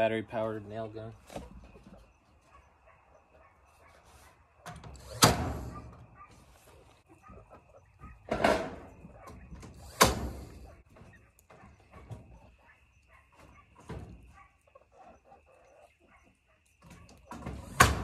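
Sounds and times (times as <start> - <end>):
nail gun firing into wood: 5.0 - 5.7.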